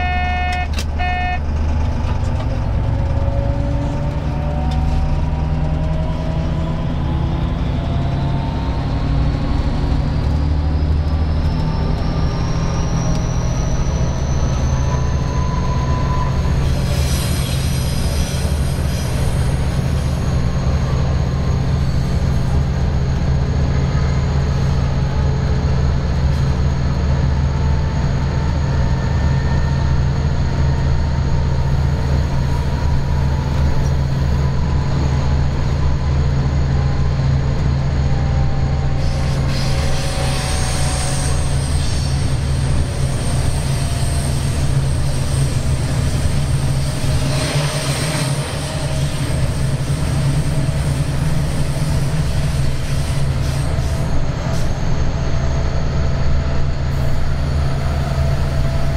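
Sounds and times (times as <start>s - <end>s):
locomotive engine drone: 0.0s - 58.9s
wheels squealing: 10.7s - 20.2s.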